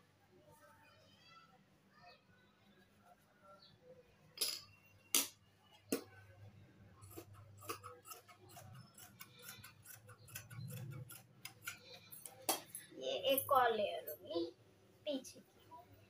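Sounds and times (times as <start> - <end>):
scissors snipping fabric: 7.0 - 12.7.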